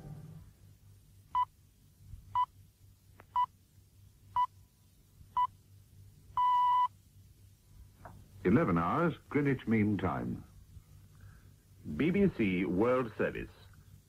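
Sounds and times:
time signal beeps over radio: 0:06.4 - 0:06.9.

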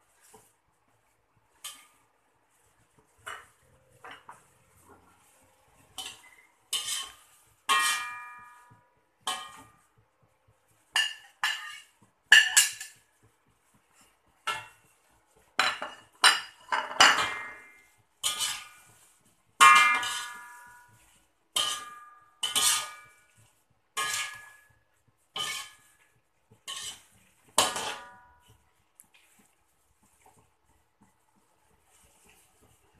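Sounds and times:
metal spatula clanking on wok: 0:05.9 - 0:09.9, 0:10.9 - 0:13.0, 0:15.6 - 0:18.9, 0:19.6 - 0:23.3, 0:24.0 - 0:25.9, 0:26.6 - 0:28.5.

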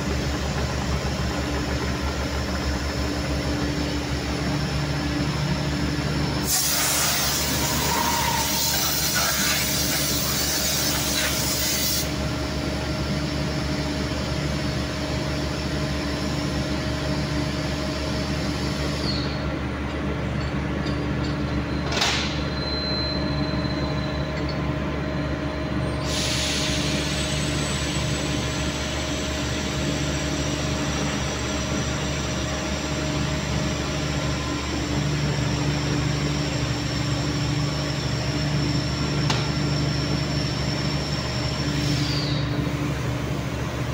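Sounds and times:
factory machinery drone: 0:00.0 - 0:43.9
air blow gun hissing: 0:06.4 - 0:12.2, 0:26.0 - 0:27.3.

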